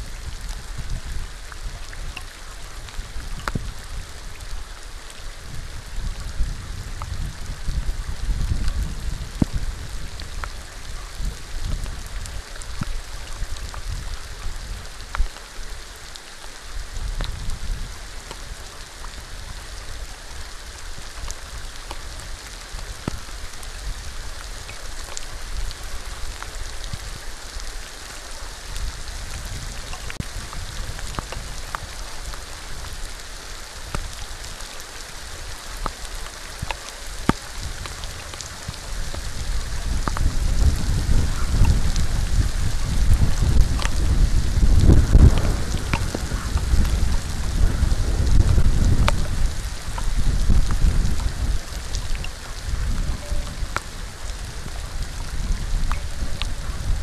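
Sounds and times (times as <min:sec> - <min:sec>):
raindrops ticking: 0:00.0 - 0:57.0
steady rain falling: 0:00.0 - 0:57.0
low rumble: 0:44.3 - 0:51.2.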